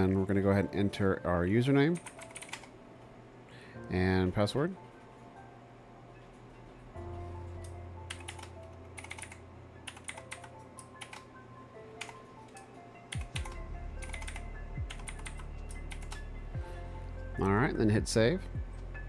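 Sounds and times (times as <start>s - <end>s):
typing on computer keyboard: 1.9s - 2.7s, 8.1s - 11.3s, 12.0s - 16.2s.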